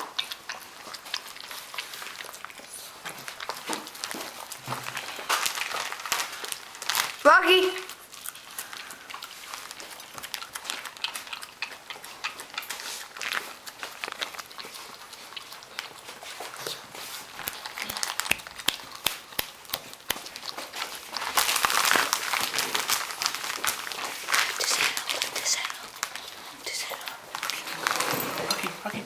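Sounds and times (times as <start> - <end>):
dog licking and chewing: 0.0 - 29.0
rustling and scraping: 16.0 - 17.8, 20.6 - 29.0.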